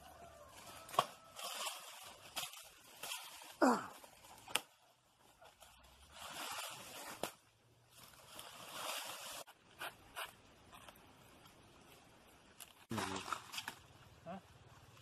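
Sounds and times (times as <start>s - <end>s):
dry leaves rustling: 0.0s - 9.5s, 12.4s - 14.2s.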